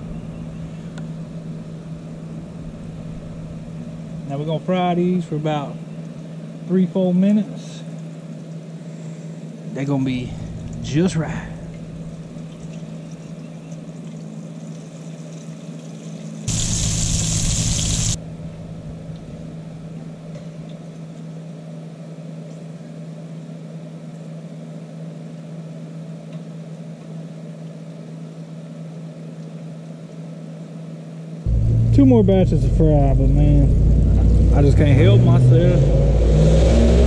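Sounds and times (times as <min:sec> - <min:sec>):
burner hum: 0:00.0 - 0:06.7, 0:09.6 - 0:13.0, 0:16.5 - 0:20.8, 0:31.5 - 0:37.0
fish deep-frying in oil: 0:12.4 - 0:18.2
loud burst of hissing: 0:16.5 - 0:18.2.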